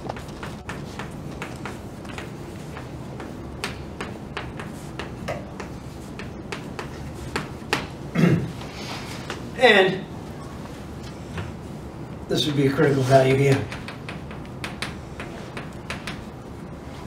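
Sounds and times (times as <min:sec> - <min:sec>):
chalk tapping on blackboard: 0:00.0 - 0:08.0, 0:13.3 - 0:16.4.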